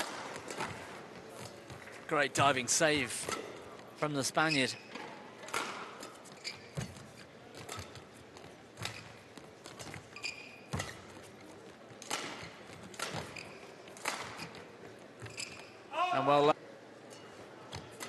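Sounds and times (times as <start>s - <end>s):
shoes squeaking on court: 0.3s - 15.9s
rackets striking shuttlecock: 10.7s - 11.2s, 12.0s - 14.6s.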